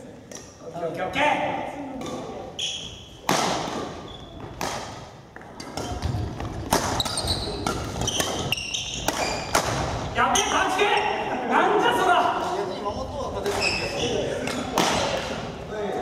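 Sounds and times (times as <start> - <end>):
shoe squeaks: 2.6 - 3.2, 4.0 - 4.6, 6.9 - 9.6, 13.5 - 14.7
racket hitting shuttlecock: 3.2 - 10.0.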